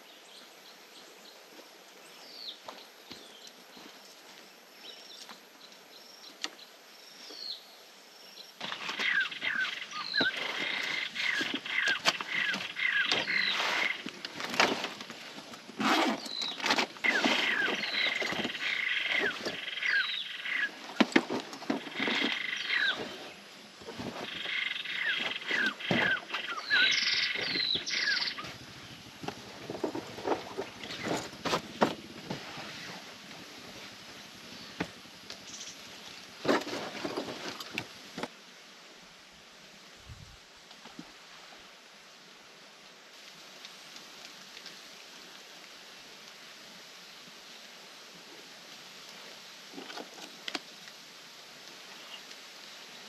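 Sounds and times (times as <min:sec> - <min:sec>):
sleeping mat and backpack rustling: 0:13.3 - 0:18.5
animal falling chirps: 0:23.9 - 0:28.6.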